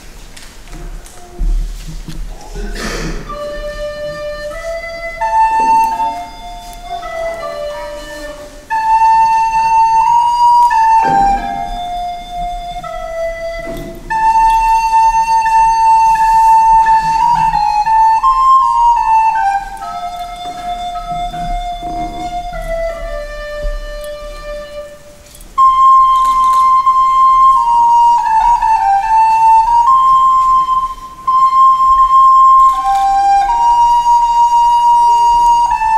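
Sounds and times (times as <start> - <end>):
recorder playing slow melody: 3.2 - 35.9.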